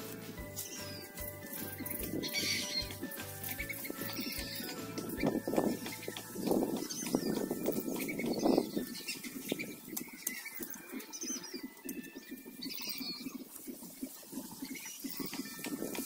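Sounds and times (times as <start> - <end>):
dry leaves rustling: 0.0 - 11.1.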